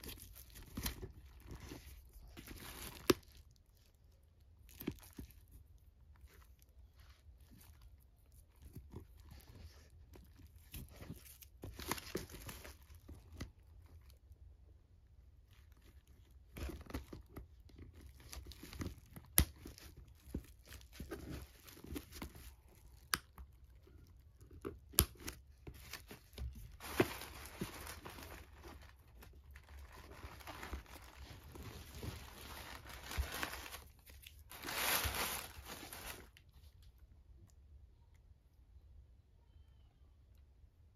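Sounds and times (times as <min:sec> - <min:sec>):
tissue paper rustling: 0:25.6 - 0:36.8.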